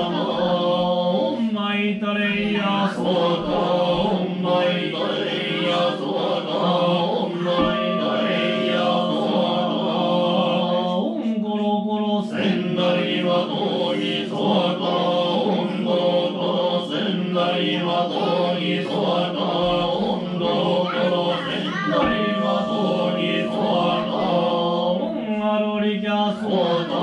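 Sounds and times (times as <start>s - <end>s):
men chanting: 0.0s - 27.0s
held low drone: 3.0s - 25.6s.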